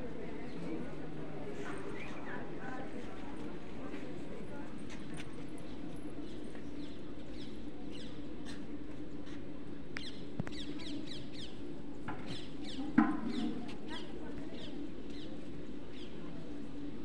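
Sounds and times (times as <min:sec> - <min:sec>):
small birds chirping: 0:10.0 - 0:11.6.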